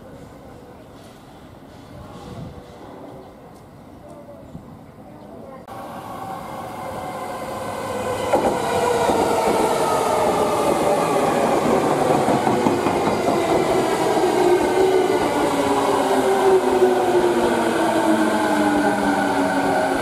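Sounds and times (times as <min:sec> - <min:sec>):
train wheels knocking on track: 0:08.2 - 0:15.4.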